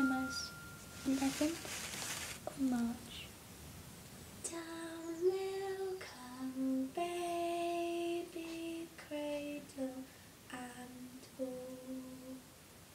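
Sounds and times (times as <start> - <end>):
person humming a lullaby: 0.0 - 1.6, 4.5 - 12.5.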